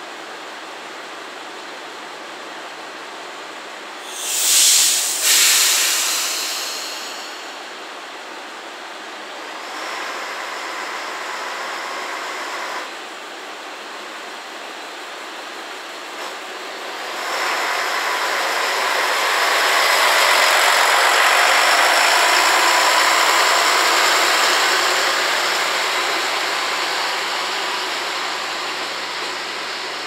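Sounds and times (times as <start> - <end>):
compressed air hiss: 4.0 - 7.9, 17.2 - 30.0
diesel engine revving: 16.8 - 30.0.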